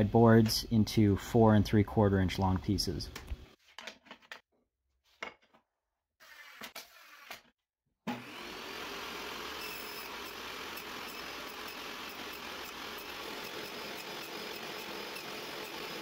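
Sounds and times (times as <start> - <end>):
table saw running: 8.1 - 16.0.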